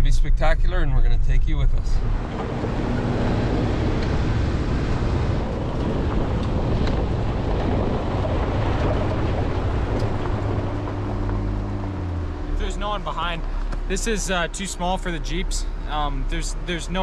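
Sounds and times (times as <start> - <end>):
engine and tyres on gravel: 1.5 - 17.0
wind buffeting microphone: 1.8 - 12.4.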